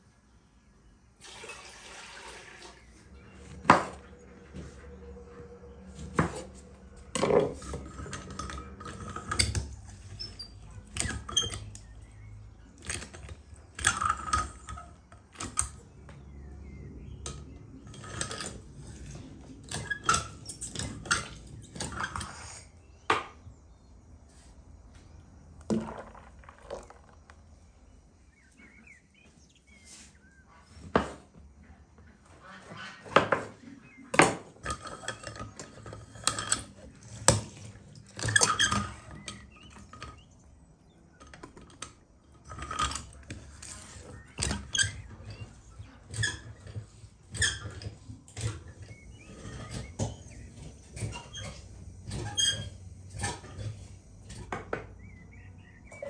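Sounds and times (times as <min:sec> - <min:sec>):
citrus juicer metal clinks: 0:34.2 - 0:40.4.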